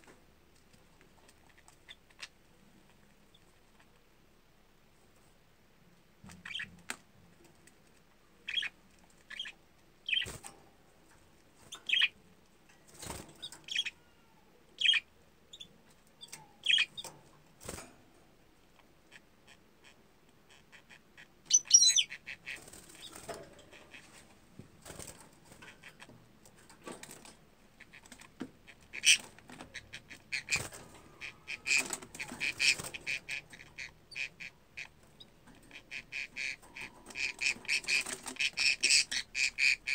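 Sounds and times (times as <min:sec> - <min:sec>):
budgerigars chirping: 0:06.4 - 0:06.7, 0:08.4 - 0:10.4, 0:11.8 - 0:12.2, 0:13.5 - 0:14.0, 0:14.8 - 0:17.1, 0:19.1 - 0:24.0, 0:28.7 - 0:39.9.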